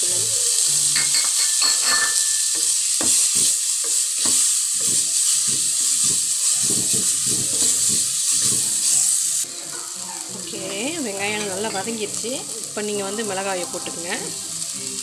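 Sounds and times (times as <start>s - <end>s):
onions sizzling in hot oil: 0.0s - 15.0s.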